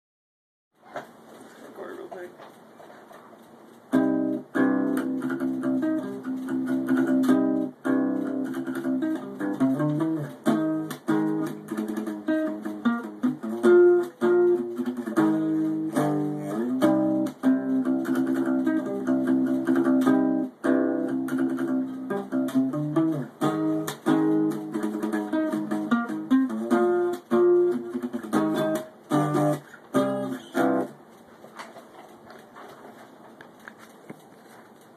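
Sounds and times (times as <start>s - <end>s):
faint rustling: 0.8s - 3.9s, 29.6s - 34.9s
acoustic guitar riff: 3.9s - 31.2s.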